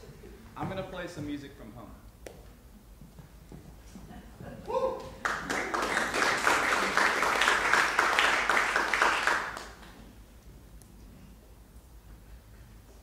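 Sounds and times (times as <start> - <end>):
audience applauding: 5.0 - 10.0.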